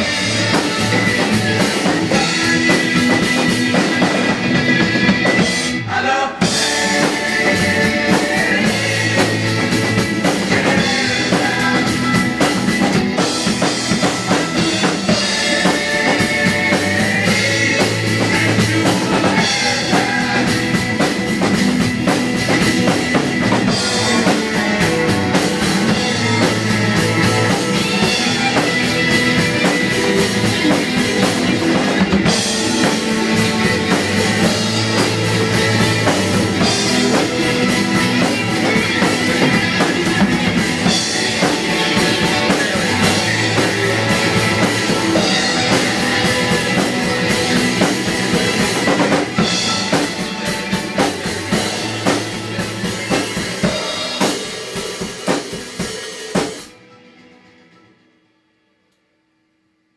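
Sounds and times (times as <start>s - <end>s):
acoustic drum kit: 0.0s - 56.8s
rock song with guitar and bass: 0.0s - 56.9s.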